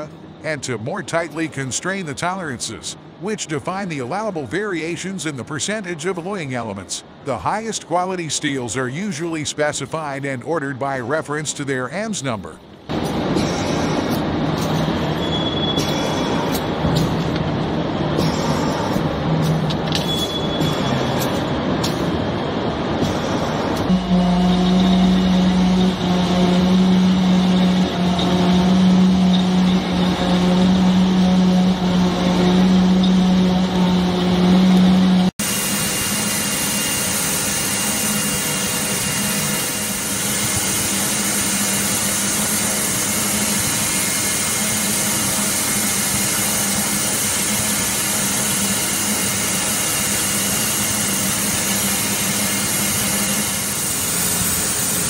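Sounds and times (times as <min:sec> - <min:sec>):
machine shop noise: 0:00.0 - 0:55.0
lathe humming: 0:20.6 - 0:55.0.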